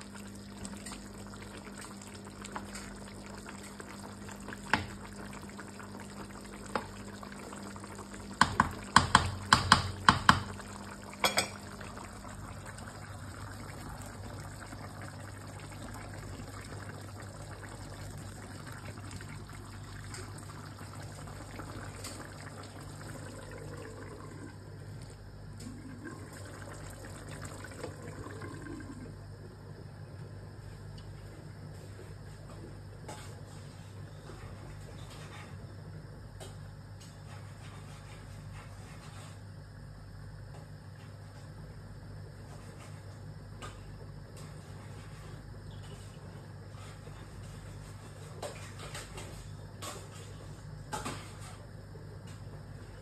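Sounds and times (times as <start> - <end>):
stew bubbling in a pan: 0.0 - 53.0
wooden spatula knocking a pan: 8.4 - 10.6.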